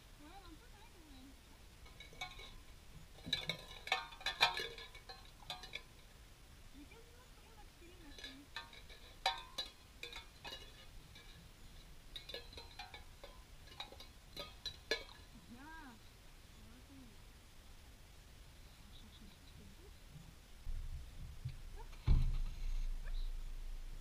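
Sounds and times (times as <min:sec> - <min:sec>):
tin cans clinking and rattling: 0:01.8 - 0:06.1, 0:08.0 - 0:11.5, 0:12.1 - 0:15.4.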